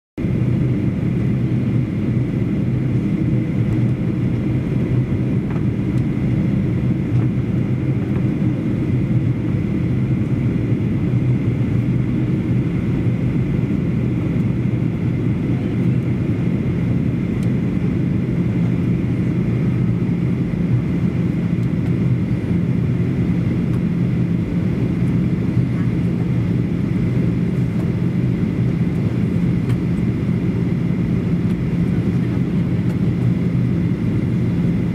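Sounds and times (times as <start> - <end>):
jet engines droning: 0.2 - 34.9.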